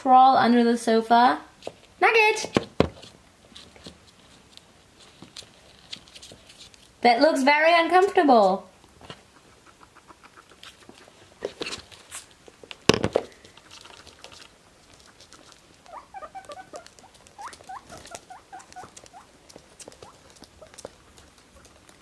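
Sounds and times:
guinea pig squeaking: 8.5s - 12.4s, 13.5s - 21.9s.

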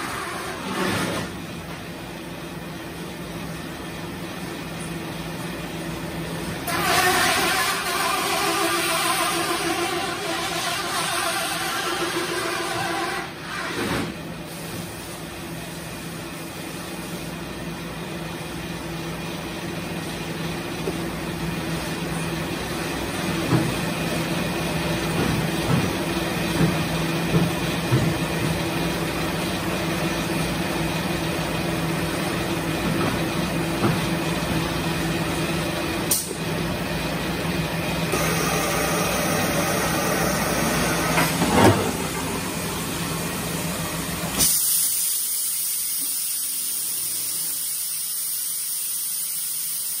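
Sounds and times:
industrial machine humming: 17.3s - 44.8s
high hiss of compressed air: 44.2s - 50.0s.

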